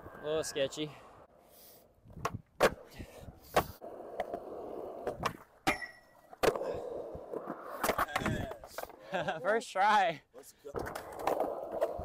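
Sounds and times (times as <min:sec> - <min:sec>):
skateboard wheels rumbling: 0:02.8 - 0:05.6, 0:06.5 - 0:09.3, 0:10.8 - 0:12.0
skateboard clacks: 0:07.3 - 0:09.0.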